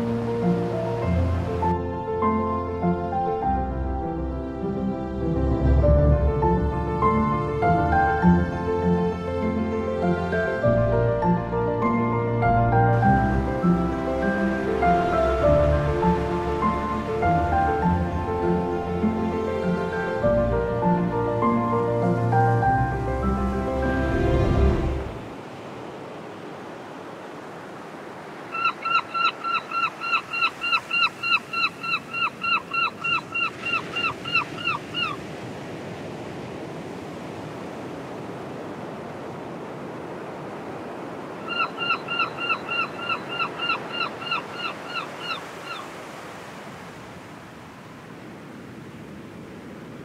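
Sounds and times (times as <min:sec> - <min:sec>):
bird calling in falling notes: 0:28.5 - 0:35.2, 0:41.4 - 0:46.0.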